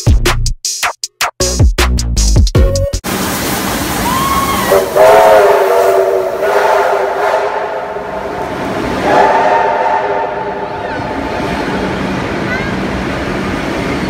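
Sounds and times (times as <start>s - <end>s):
steam locomotive whistle blasts: 4.5s - 8.4s, 9.0s - 10.9s
rumble of carriages rolling past: 7.7s - 14.0s.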